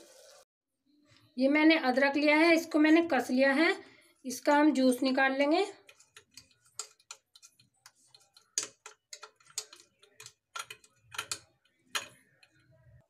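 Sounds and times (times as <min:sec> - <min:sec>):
spoon scraping metal strainer: 0:05.4 - 0:12.8.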